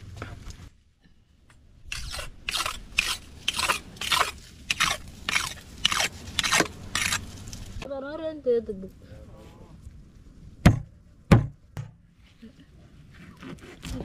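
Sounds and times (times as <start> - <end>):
machete sharpened on stone: 1.9 - 7.2.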